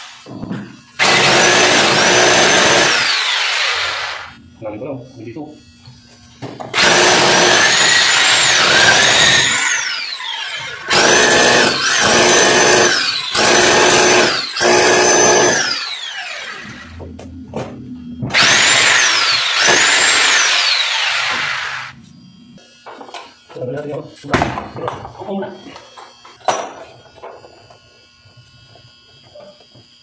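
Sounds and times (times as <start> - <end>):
electric drill boring into wall: 1.0 - 4.4, 6.7 - 17.0, 18.3 - 22.0.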